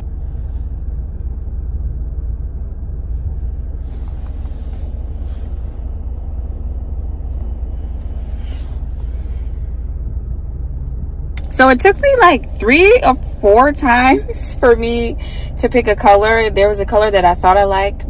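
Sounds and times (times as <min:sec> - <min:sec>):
car cabin low rumble: 0:00.0 - 0:18.0.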